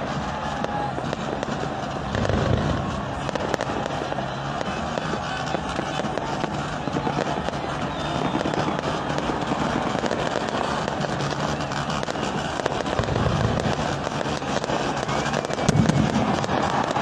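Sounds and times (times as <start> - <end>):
fireworks crackling and popping: 0.0 - 17.0
loud firework bang: 0.6 - 4.0, 8.6 - 17.0.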